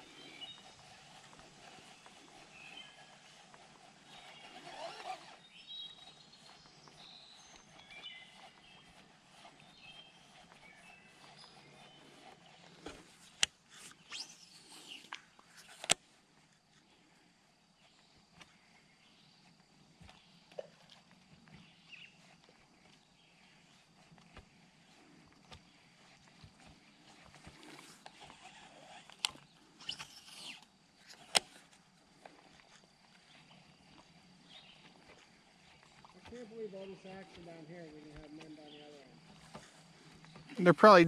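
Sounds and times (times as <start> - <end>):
fishing line whirring off reel: 0.0 - 16.0, 27.1 - 34.1
small birds chirping: 0.0 - 41.0.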